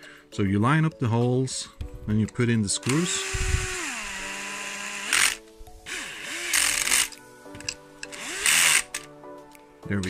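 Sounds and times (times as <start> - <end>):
electric screwdriver spinning: 2.9 - 9.1.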